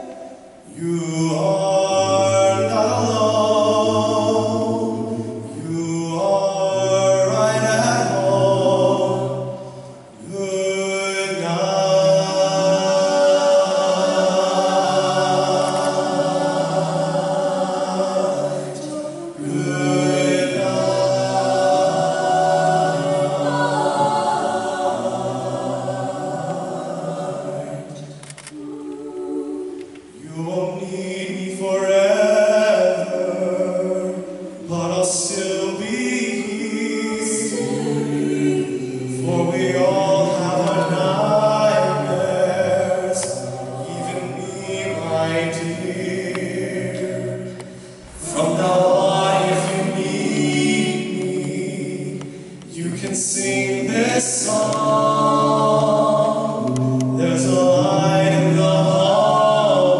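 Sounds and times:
vocal group singing in harmony: 0.0 - 59.9
singers breathing: 47.6 - 48.2.

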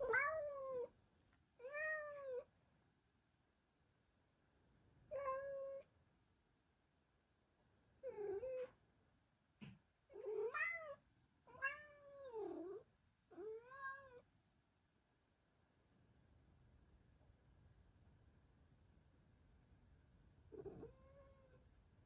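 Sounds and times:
cat meowing: 0.0 - 0.9, 1.6 - 2.5, 5.1 - 5.8, 8.0 - 8.7, 10.1 - 14.2, 20.6 - 21.6.

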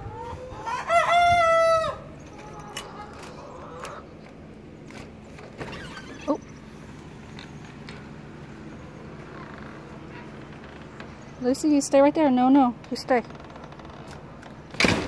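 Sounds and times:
rooster crowing: 0.5 - 2.1.

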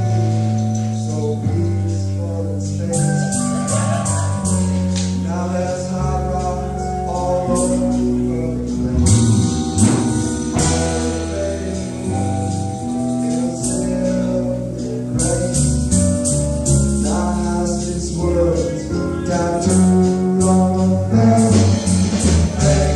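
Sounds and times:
man singing: 0.0 - 22.9
rock band playing live: 0.0 - 22.9
sharp percussion hits: 8.9 - 13.8.

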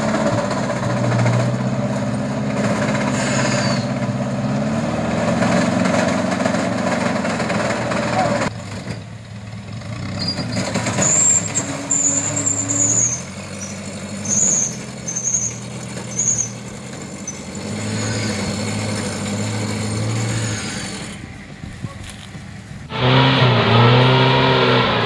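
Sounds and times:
buggy engine revving: 0.0 - 25.0
high-pitched squeal: 2.6 - 4.3, 10.2 - 21.5, 22.9 - 25.0.

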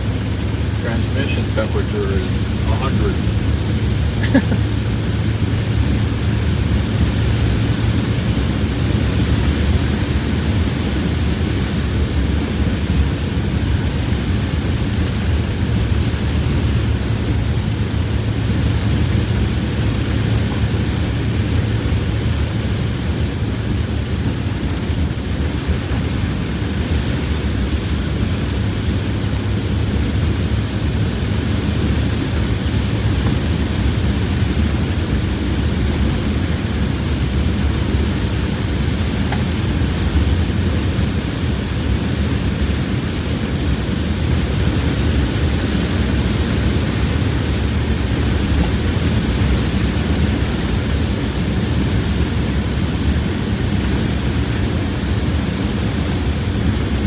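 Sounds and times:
diesel engine low drone: 0.0 - 57.0
tyre and wind noise: 3.2 - 57.0.

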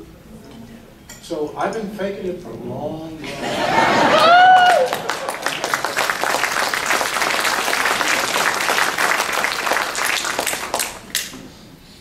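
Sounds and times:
audience applauding: 3.6 - 11.2.

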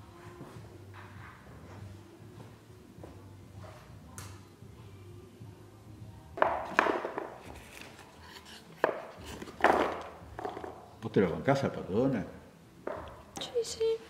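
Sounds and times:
hard objects knocking in a box: 6.4 - 7.6, 8.8 - 10.8.

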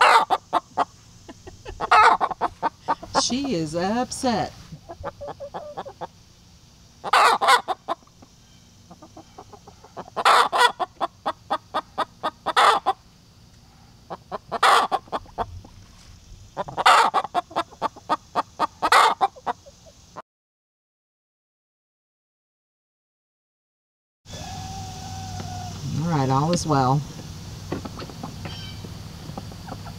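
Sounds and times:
hen cackling: 0.0 - 6.2, 7.0 - 13.1, 14.0 - 15.8, 16.5 - 20.2, 24.3 - 25.9, 27.9 - 29.9.

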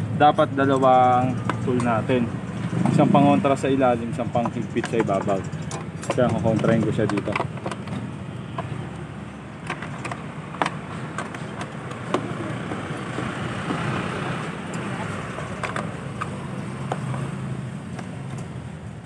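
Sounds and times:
traffic hum: 0.0 - 19.0
wrench clinking on bolt: 4.1 - 8.0.

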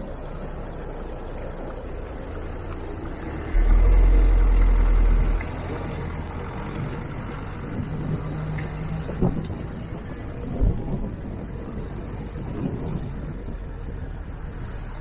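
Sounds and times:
car road and engine noise: 0.0 - 15.0
loud low rumble: 3.4 - 15.0.

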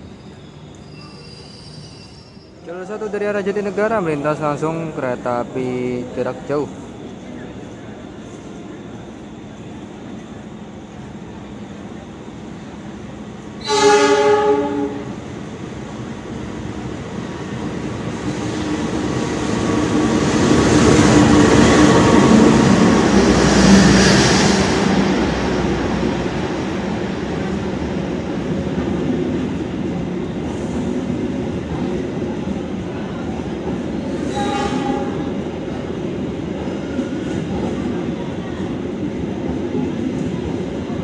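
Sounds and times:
locomotive horn blast: 13.6 - 15.2, 34.3 - 35.2.

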